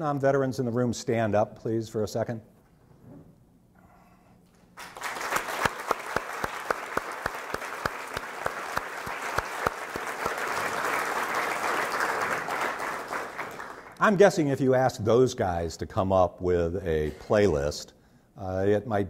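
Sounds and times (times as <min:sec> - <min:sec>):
audience applauding: 0:04.8 - 0:14.0
close distinct hand claps: 0:04.8 - 0:14.0.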